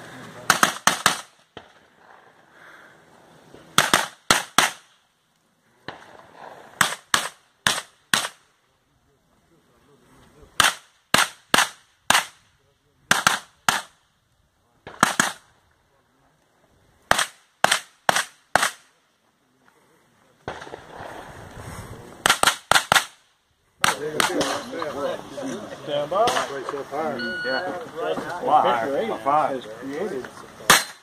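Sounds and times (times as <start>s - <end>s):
carbine gunshots: 0.4s - 2.2s, 3.7s - 5.0s, 5.8s - 8.5s, 10.6s - 12.5s, 13.1s - 14.0s, 14.8s - 15.6s, 17.1s - 19.0s, 20.4s - 21.2s, 22.2s - 24.8s, 30.7s - 31.0s.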